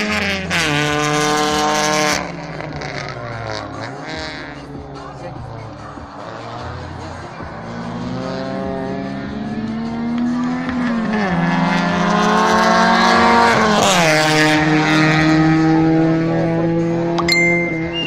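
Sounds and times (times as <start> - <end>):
car engine accelerating: 0.0 - 18.0.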